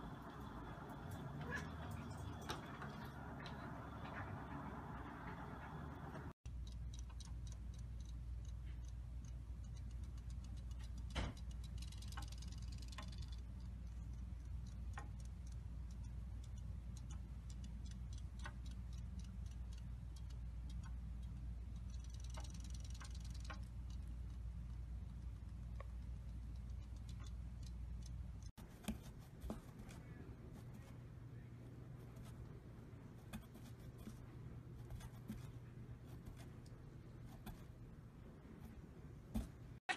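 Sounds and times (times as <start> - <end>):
cat lapping water: 0.0 - 6.2
steady low hum: 0.0 - 39.9.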